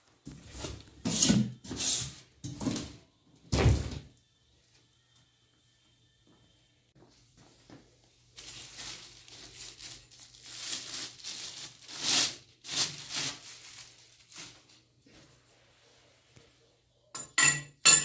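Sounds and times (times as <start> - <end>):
plastic packaging crinkling: 8.3 - 14.9.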